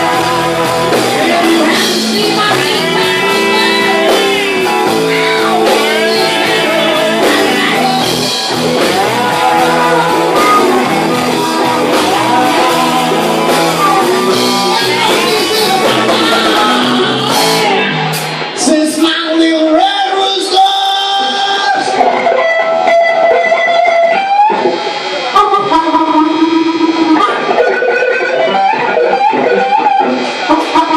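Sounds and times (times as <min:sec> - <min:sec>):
drums: 0:00.0 - 0:30.9
electric guitars: 0:00.0 - 0:30.9
live blues band: 0:00.0 - 0:30.9.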